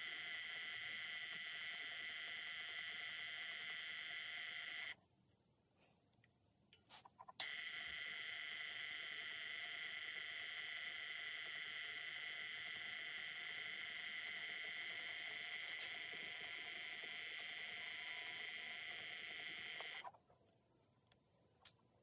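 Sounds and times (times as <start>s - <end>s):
spinning wheel high-pitched whine: 0.0s - 5.0s, 7.4s - 20.1s.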